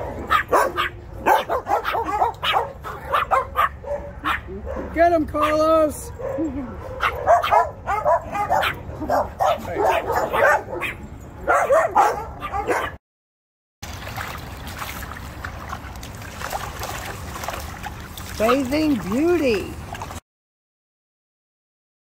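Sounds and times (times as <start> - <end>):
dogs barking: 0.0 - 13.0
water splashing in a pool: 13.8 - 20.2.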